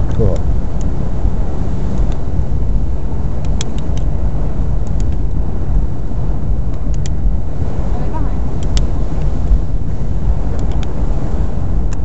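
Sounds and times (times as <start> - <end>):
faint clicks: 4.8 - 5.2, 6.7 - 7.2, 8.6 - 8.9, 10.5 - 10.9.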